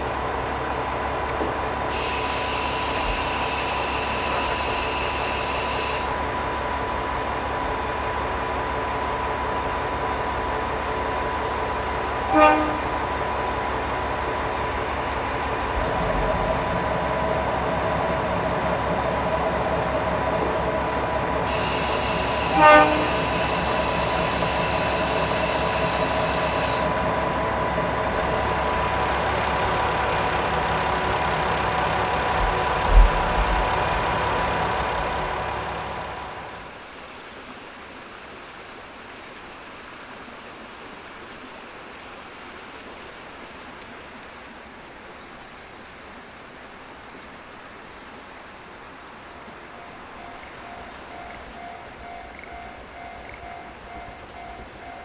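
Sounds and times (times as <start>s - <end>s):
diesel railcar idling: 0.0s - 36.8s, 49.5s - 55.0s
outdoor background noise: 0.0s - 55.0s
train horn blast: 1.9s - 6.2s, 12.2s - 13.2s, 21.3s - 27.3s.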